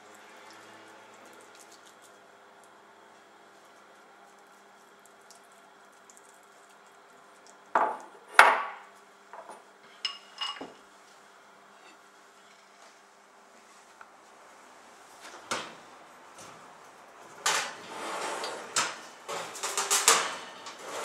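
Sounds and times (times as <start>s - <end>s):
kitchenware clinking: 9.4s - 10.8s.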